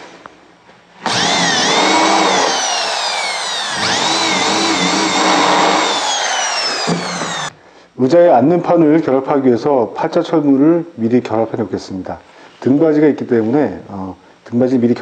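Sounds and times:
electric drill drilling into wood: 1.0 - 7.5.

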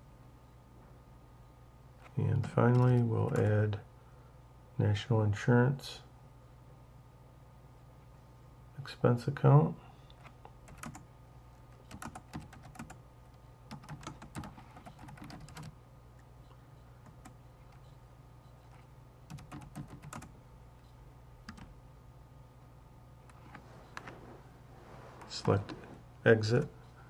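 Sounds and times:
faint electrical hum: 0.0 - 27.0
keyboard typing: 2.4 - 3.5, 10.2 - 11.0, 11.7 - 13.0, 13.7 - 15.8, 18.7 - 20.3, 21.4 - 21.7.

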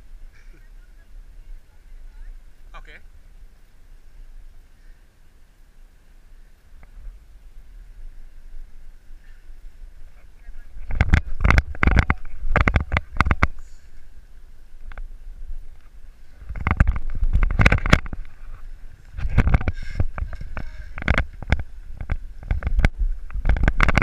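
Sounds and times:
wind buffeting microphone: 6.4 - 24.0.

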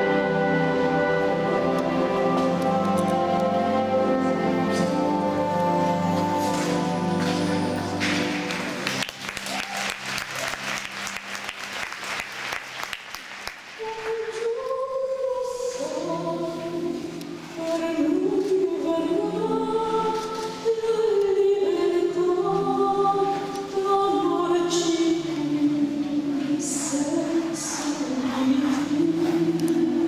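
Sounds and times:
slow choral music: 0.0 - 30.0
applause: 8.0 - 14.2.

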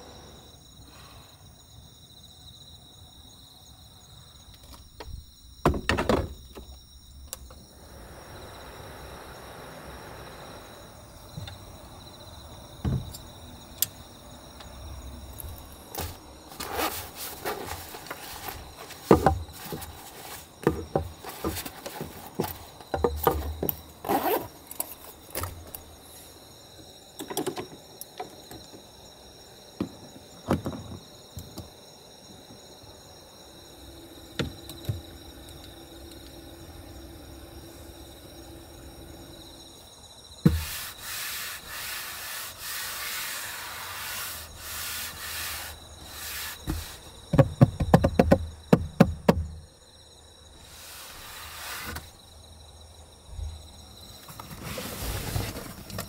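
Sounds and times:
insect chirring: 0.0 - 54.6
metal and wood knocking on table: 46.7 - 49.5.

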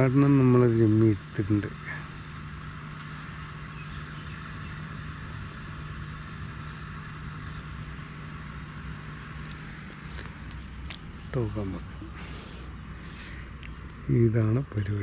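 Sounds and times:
engine humming steadily: 0.0 - 15.0
outdoor hiss: 0.0 - 15.0.

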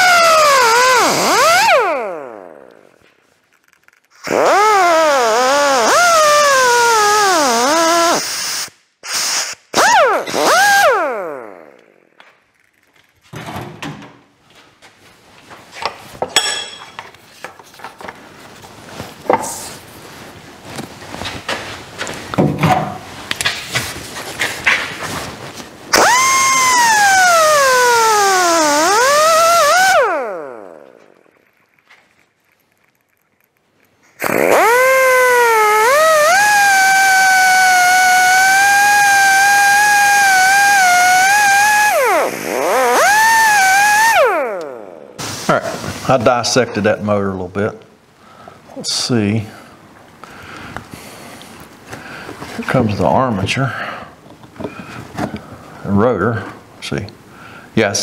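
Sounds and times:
grinder cutting metal: 0.0 - 2.7, 4.2 - 11.8, 25.9 - 31.3, 34.2 - 45.2
bright metallic clink: 16.4 - 17.0.

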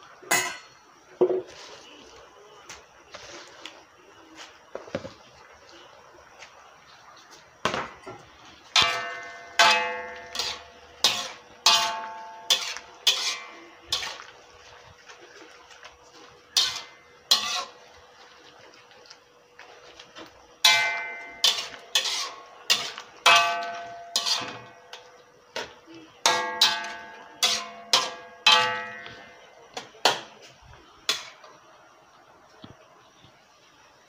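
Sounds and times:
spatula clanking on metal wok: 0.3 - 0.8, 8.7 - 14.2, 16.6 - 17.8, 20.6 - 30.4, 31.1 - 31.5.

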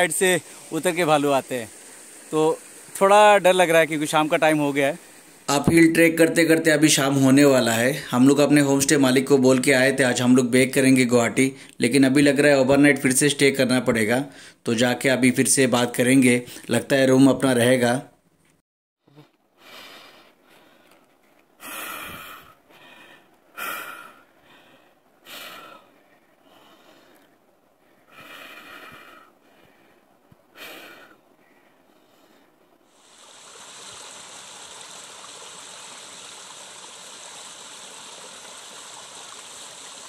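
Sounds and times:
stream running over rocks: 0.0 - 11.1, 32.8 - 40.0
man breathing hard and gasping: 21.6 - 32.6.

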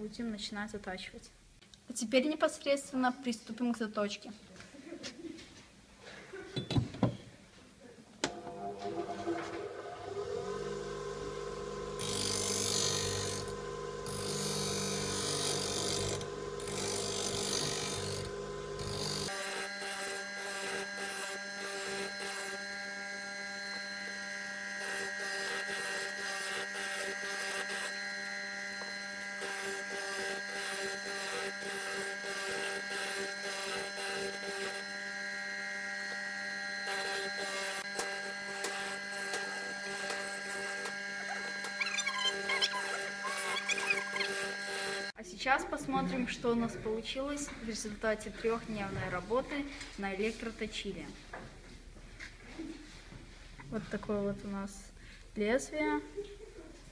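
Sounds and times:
grinder motor hum: 8.2 - 45.2
bench grinder grinding steel: 8.5 - 45.2.

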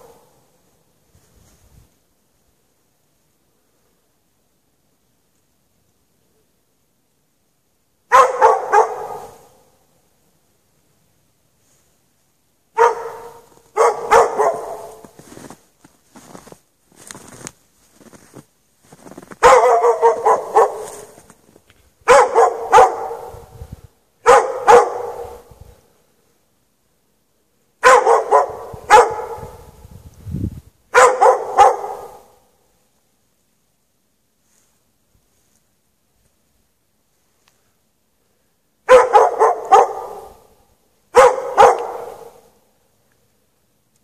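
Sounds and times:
dog barking: 8.1 - 9.7, 12.8 - 15.2, 19.4 - 21.2, 22.0 - 23.5, 24.2 - 25.5, 27.8 - 29.7, 30.9 - 32.4, 38.8 - 42.6.

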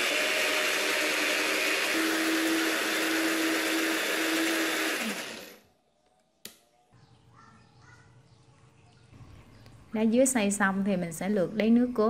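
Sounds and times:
blender motor running: 0.0 - 5.7
blender motor winding down: 0.0 - 5.7.

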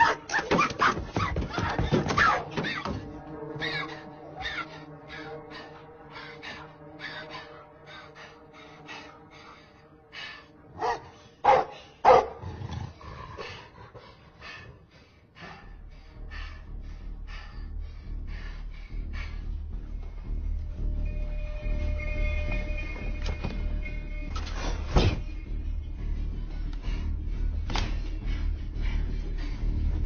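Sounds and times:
dog barking: 0.0 - 1.3, 10.8 - 12.4
music drone: 2.4 - 12.0, 13.2 - 30.0.

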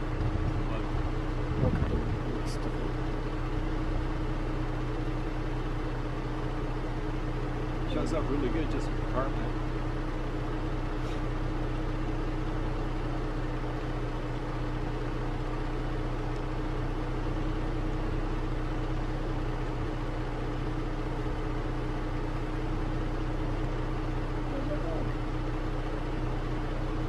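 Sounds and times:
vehicle engine idling: 0.0 - 27.0.

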